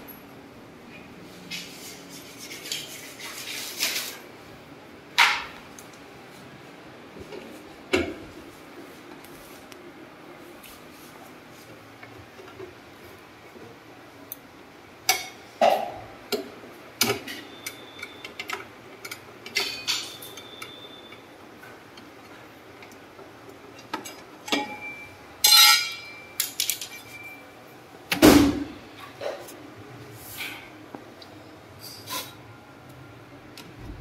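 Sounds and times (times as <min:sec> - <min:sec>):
screwdriver clinking on metal: 0:23.8 - 0:27.3.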